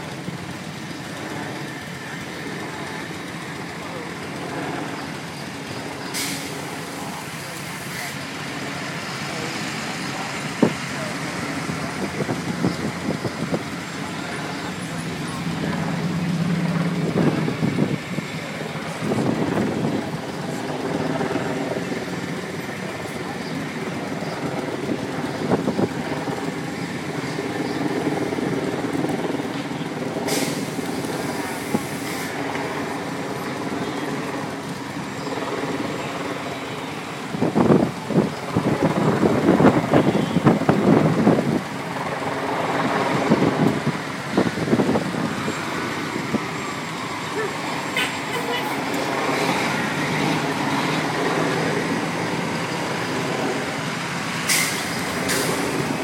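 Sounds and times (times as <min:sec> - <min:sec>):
cars passing: 0:00.0 - 0:56.0
slow vehicles driving past: 0:00.0 - 0:56.0
hiss: 0:06.1 - 0:08.2, 0:30.3 - 0:32.4, 0:54.4 - 0:55.9.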